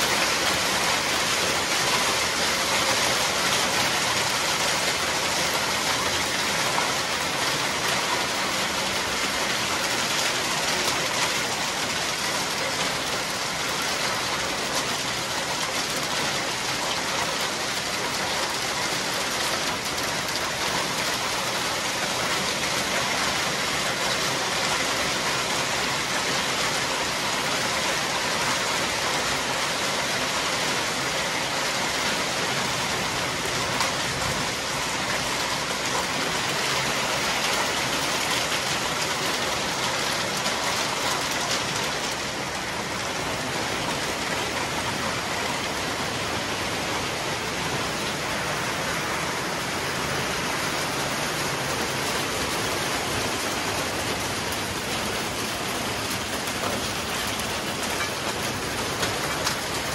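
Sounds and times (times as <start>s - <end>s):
hail and heavy rain on concrete: 0.0s - 59.9s.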